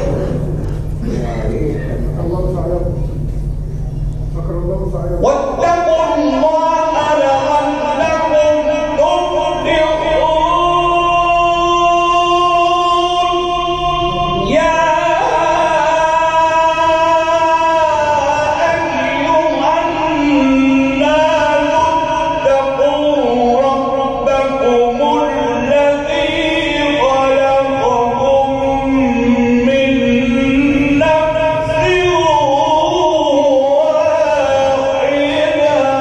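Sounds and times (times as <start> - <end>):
man chanting melodically: 0.0 - 36.0.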